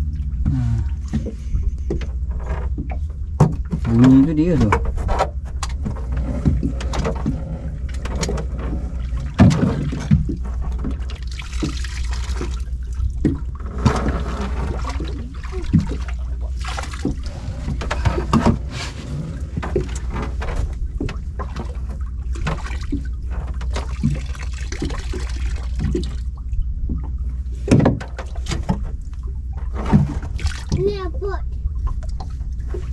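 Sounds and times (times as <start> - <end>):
low rumble: 0.0 - 27.7
water trickling and splashing: 0.0 - 32.9.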